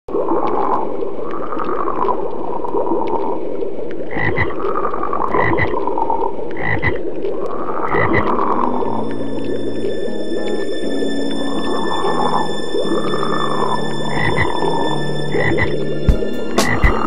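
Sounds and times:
frogs croaking: 0:04.1 - 0:04.6, 0:05.3 - 0:05.8, 0:06.5 - 0:07.0, 0:07.8 - 0:08.4, 0:13.3 - 0:15.8.

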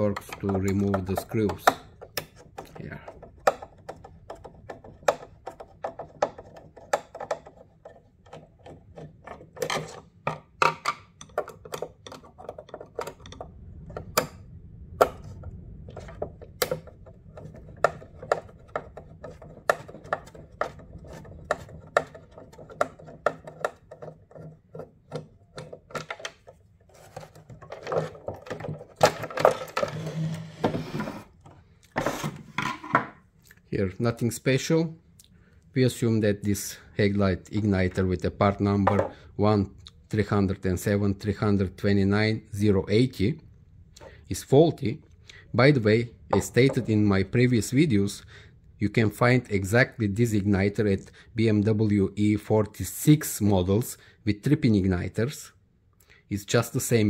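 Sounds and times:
scraping and handling: 0:00.0 - 0:14.4, 0:15.0 - 0:33.3.

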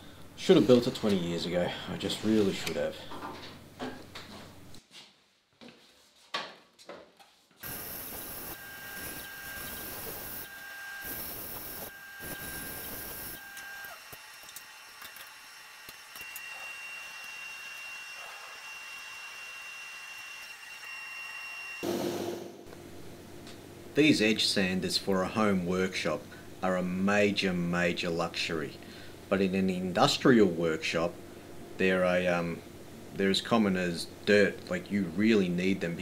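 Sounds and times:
steady whine: 0:07.6 - 0:14.0.

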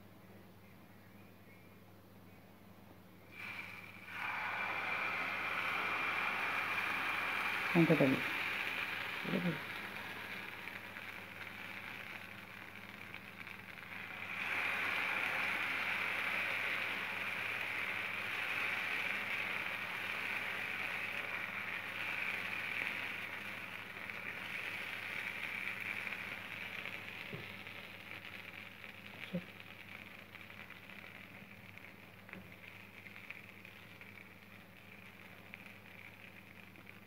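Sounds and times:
batter sizzling on a pan: 0:03.2 - 0:37.0.

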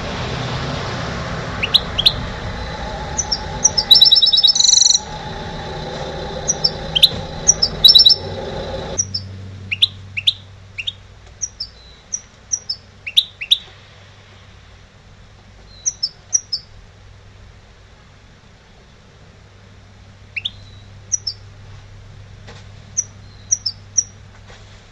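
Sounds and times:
low hum: 0:00.0 - 0:10.2
bird singing: 0:01.5 - 0:13.7, 0:15.7 - 0:16.7, 0:20.3 - 0:21.5, 0:23.0 - 0:24.2.

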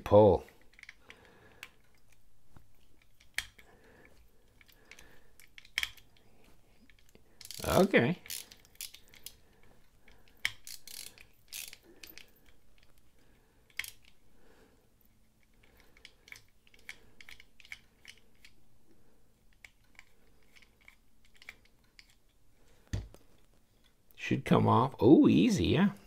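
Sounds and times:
screwdriver metal clicks: 0:02.9 - 0:03.7, 0:04.6 - 0:06.2.

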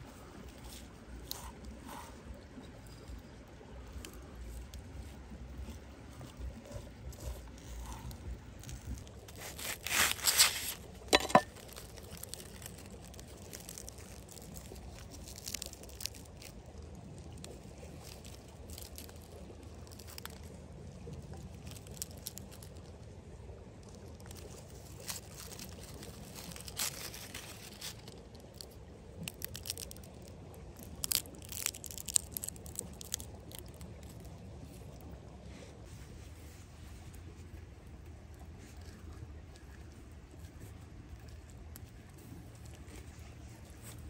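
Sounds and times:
foil crinkling: 0:07.6 - 0:20.5, 0:21.3 - 0:22.9, 0:24.0 - 0:34.4
knife cutting through foil: 0:09.3 - 0:11.6.

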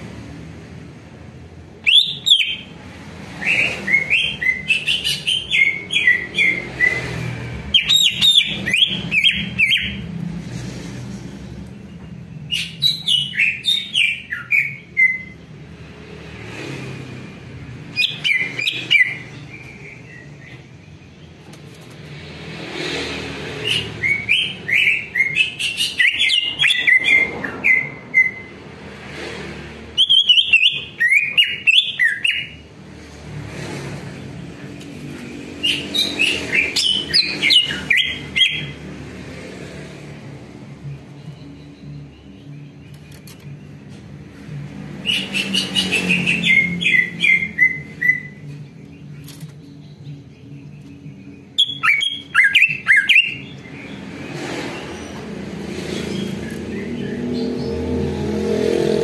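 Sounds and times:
bird singing whistled notes: 0:01.8 - 0:02.7, 0:07.7 - 0:10.0, 0:12.4 - 0:15.4, 0:30.0 - 0:32.6, 0:45.0 - 0:54.0
sharp bird clicks: 0:42.8 - 0:43.6, 0:48.8 - 0:49.8.

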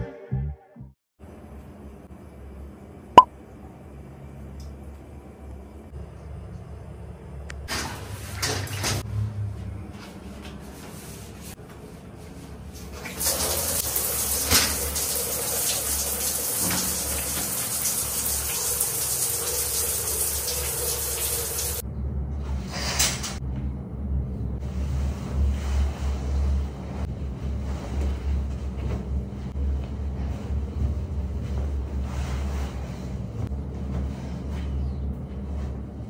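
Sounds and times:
shower water spraying: 0:13.0 - 0:21.8.

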